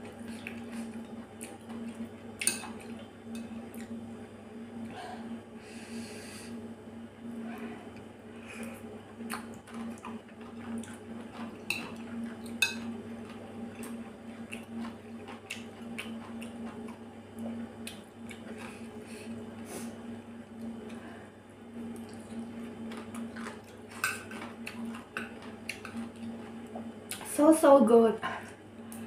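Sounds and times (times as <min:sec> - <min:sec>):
steady low hum: 0:00.0 - 0:29.0
chewing: 0:08.6 - 0:19.0, 0:22.0 - 0:27.3.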